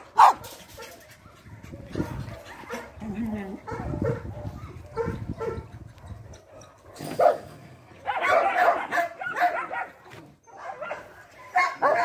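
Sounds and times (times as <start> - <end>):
dog barking: 0.2 - 1.0, 2.0 - 3.0, 3.6 - 12.0.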